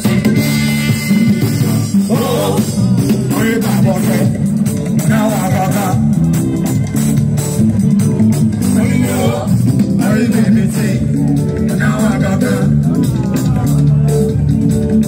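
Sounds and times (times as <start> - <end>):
heavy bass line: 0.0 - 15.0
live band music: 0.0 - 15.0
person singing: 2.0 - 6.3, 8.6 - 14.5.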